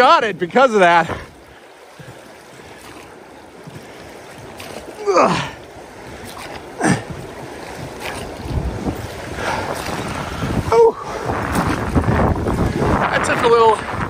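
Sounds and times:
river water rushing: 0.0s - 14.0s.

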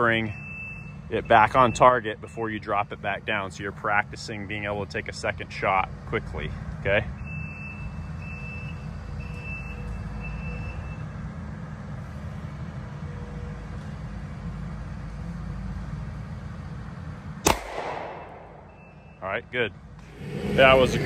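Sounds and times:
backup alarm beeping: 0.0s - 3.0s, 7.1s - 11.1s, 18.2s - 19.2s
engine running steadily: 0.0s - 21.0s
pistol shot: 17.4s - 18.9s.

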